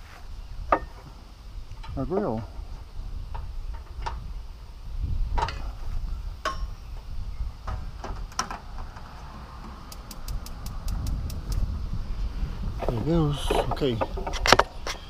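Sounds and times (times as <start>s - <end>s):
wind rumble on microphone: 0.0s - 15.0s
gas grill igniter clicking: 9.9s - 11.7s.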